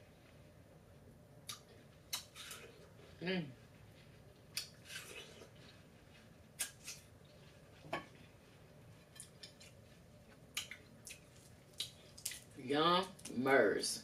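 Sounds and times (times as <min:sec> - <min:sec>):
chewing crunches: 0:10.5 - 0:12.6.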